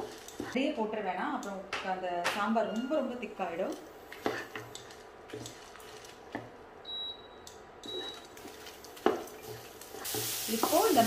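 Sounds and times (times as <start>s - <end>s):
faint high beeps: 6.8s - 8.3s.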